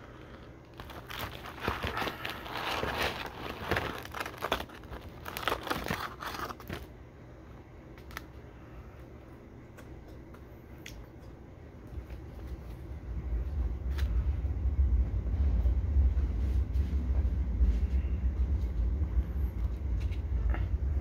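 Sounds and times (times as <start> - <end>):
paper carton crinkling: 0.7 - 6.9.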